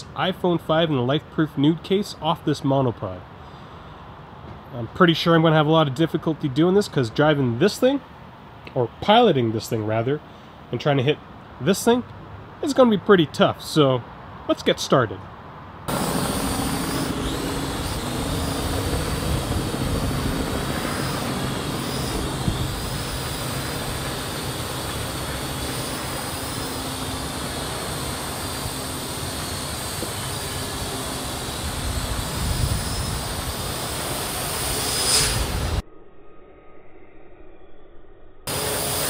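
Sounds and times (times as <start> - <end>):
drone rotors whining: 15.9 - 39.0.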